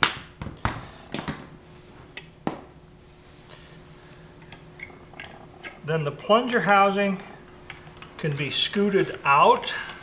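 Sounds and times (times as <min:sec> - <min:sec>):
tool clicking on metal parts: 0:07.6 - 0:10.0.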